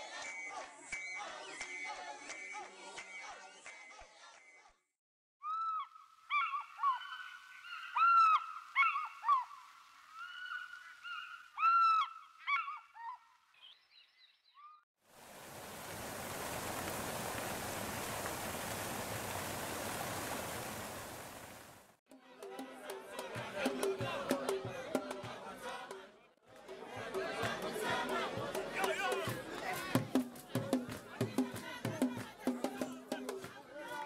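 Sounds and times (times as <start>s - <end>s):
waterfall rushing: 15.1s - 22.0s.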